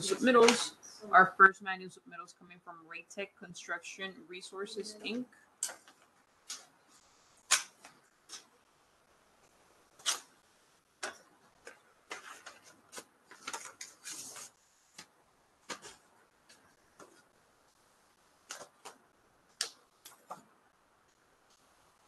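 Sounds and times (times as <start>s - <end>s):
paper rustling: 11.0s - 17.3s, 18.4s - 20.4s.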